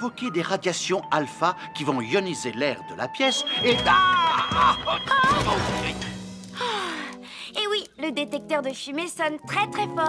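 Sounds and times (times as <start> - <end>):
comic music: 3.1 - 7.2
smoke alarm beeping: 3.3 - 5.4.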